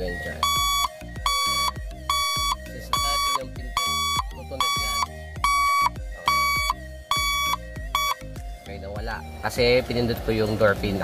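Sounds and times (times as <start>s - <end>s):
buzzer tester beeping: 0.0s - 8.4s.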